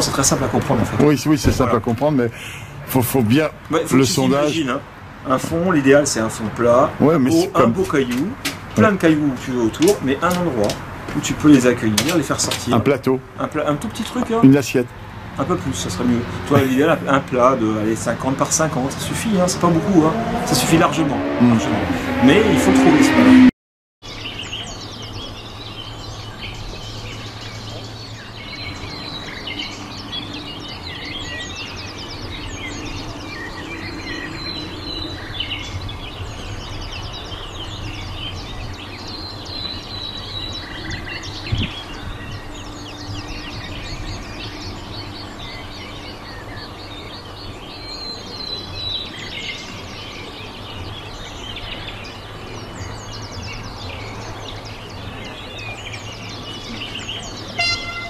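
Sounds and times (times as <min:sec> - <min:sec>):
small birds chirping: 0:00.0 - 0:23.4, 0:24.0 - 0:58.0.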